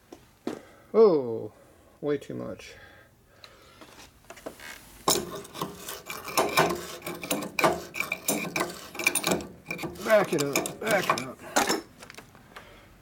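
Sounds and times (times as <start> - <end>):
wrench scraping and clicking on metal: 5.0 - 11.9.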